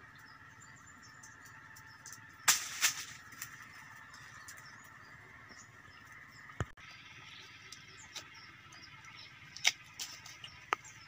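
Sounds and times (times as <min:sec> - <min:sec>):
faint outdoor background: 0:00.0 - 0:11.0
scraping rustles of dry leaves: 0:01.3 - 0:05.2, 0:07.7 - 0:11.0.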